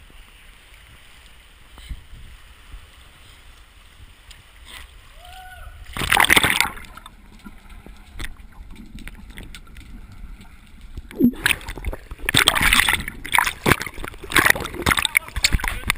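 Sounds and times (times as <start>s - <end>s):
water sloshing and splashing: 5.8s - 15.9s
loud splash: 5.9s - 7.1s, 11.1s - 15.9s.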